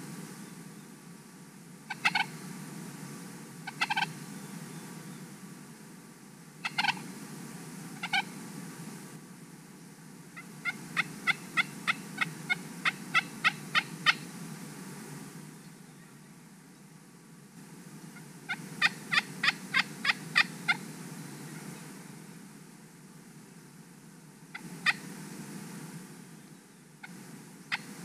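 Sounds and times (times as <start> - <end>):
turkey yelps: 1.9 - 2.3, 3.7 - 4.1, 6.6 - 7.0, 8.0 - 8.3, 10.6 - 14.2, 18.5 - 20.8
turkeys gobbling: 1.9 - 2.3, 3.7 - 4.1, 6.6 - 7.0, 8.0 - 8.3, 10.4 - 14.2, 18.5 - 20.8, 24.5 - 25.0, 27.7 - 27.9.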